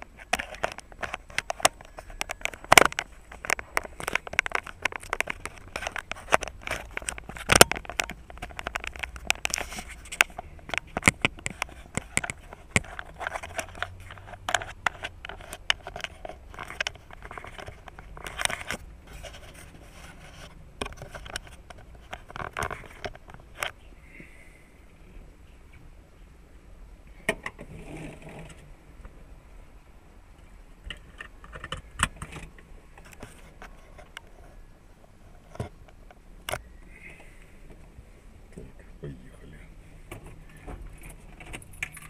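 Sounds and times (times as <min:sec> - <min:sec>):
fingers handling camera: 0:00.0 - 0:23.8.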